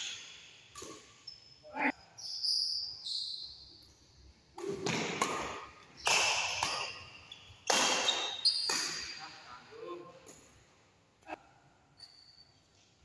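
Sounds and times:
rackets striking shuttlecock: 0.7 - 1.1, 4.6 - 9.2
shoes squeaking on court floor: 6.0 - 9.2.

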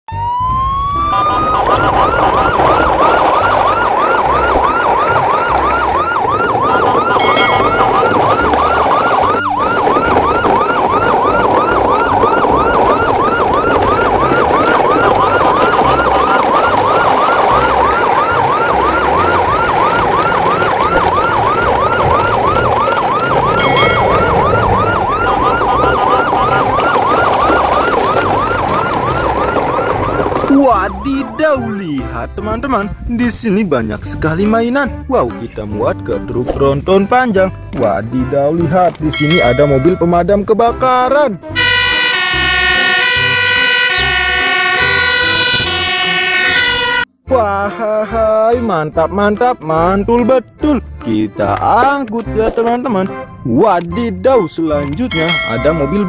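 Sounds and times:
electronic siren yelping: 0.1 - 32.0, 41.5 - 47.1.

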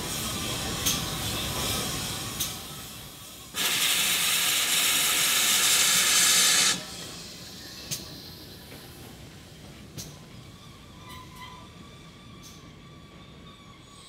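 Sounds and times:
steam hissing: 0.0 - 9.0
train rumbling by: 0.0 - 14.0.

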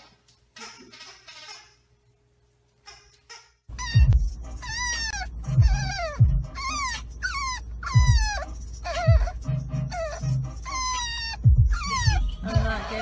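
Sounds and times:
dog whining: 2.9 - 12.5.

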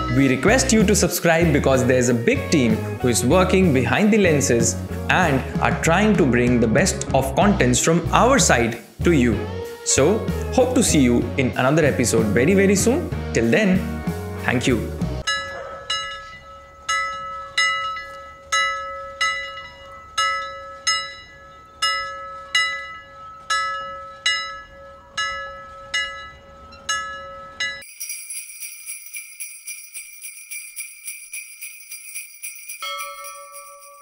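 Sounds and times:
high-pitched jingling: 14.5 - 34.0
bell-like chimes music: 15.2 - 34.0.

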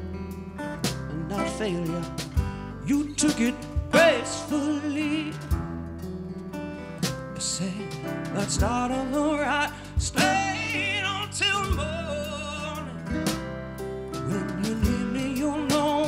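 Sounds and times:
strummed acoustic guitar: 0.0 - 16.0
man singing: 1.1 - 5.6, 7.4 - 13.4, 14.2 - 16.0.

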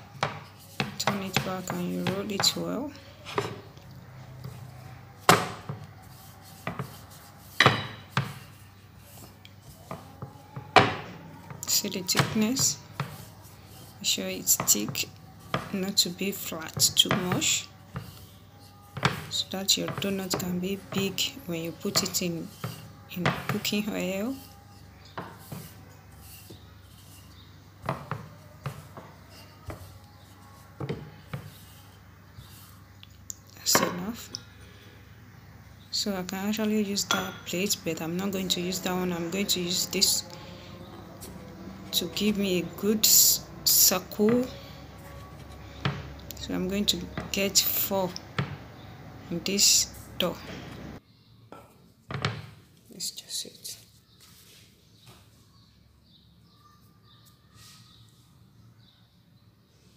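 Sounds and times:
rolling pin rolling dough: 0.0 - 51.0
rolling pin knocking on board: 7.6 - 8.4, 19.0 - 19.3.

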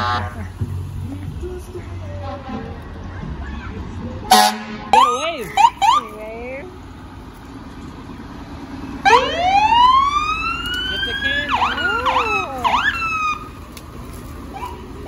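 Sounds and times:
fire engine siren wailing: 4.3 - 6.2, 8.9 - 13.8.

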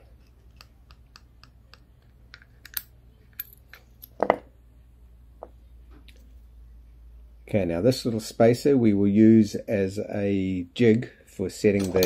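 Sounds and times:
metal and plastic parts clicking: 0.5 - 4.2.

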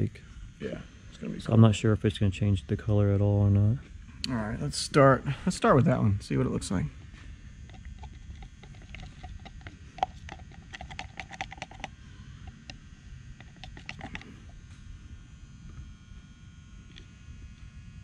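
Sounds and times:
stir stick clicking in plastic cup: 7.7 - 11.9, 13.4 - 14.2.

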